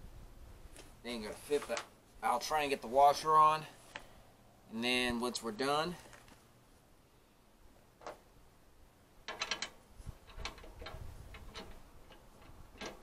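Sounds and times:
small metal clicks: 9.2 - 13.0.

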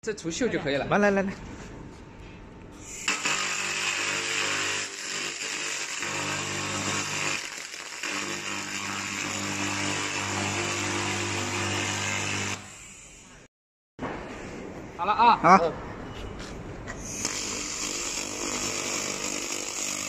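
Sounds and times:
laser cleaning gun buzzing hiss: 2.8 - 13.4, 17.1 - 20.0.

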